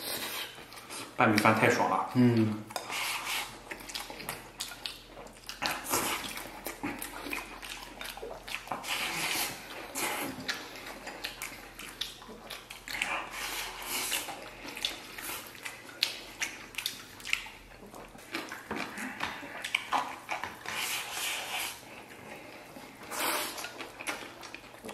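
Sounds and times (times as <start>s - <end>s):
wet chewing: 0.0s - 24.9s
slurping food: 2.8s - 4.8s, 5.5s - 12.2s, 12.8s - 17.4s, 18.3s - 24.4s.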